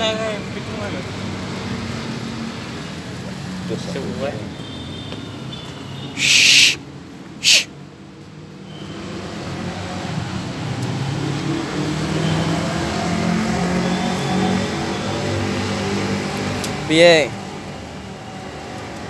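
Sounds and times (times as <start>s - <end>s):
short loud hissing: 6.1s - 6.8s, 7.4s - 7.7s.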